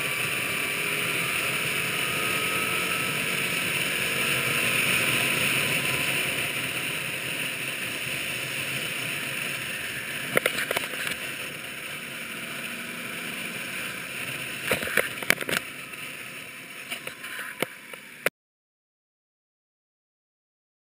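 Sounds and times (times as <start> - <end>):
wind and road noise: 0.0 - 18.3.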